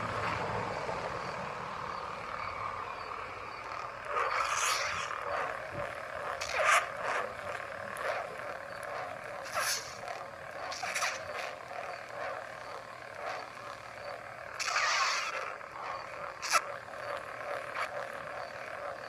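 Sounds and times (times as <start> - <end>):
lightsaber hum: 0.0 - 19.0
lightsaber swing sounds: 3.7 - 18.8.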